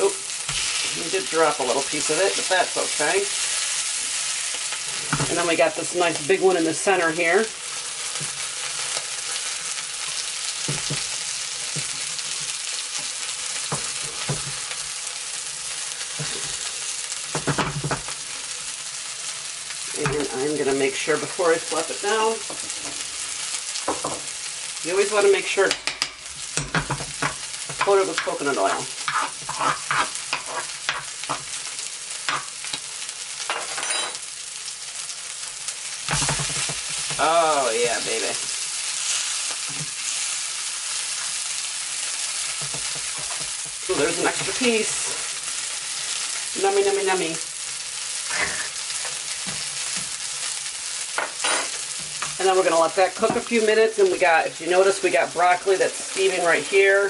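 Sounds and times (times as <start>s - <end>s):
fish sizzling in a frying pan: 0.0s - 57.0s
spatula tapping a pan: 10.6s - 12.0s, 25.7s - 29.2s, 36.1s - 37.2s, 42.6s - 43.8s
utensil scraping and tapping pan: 25.7s - 31.5s.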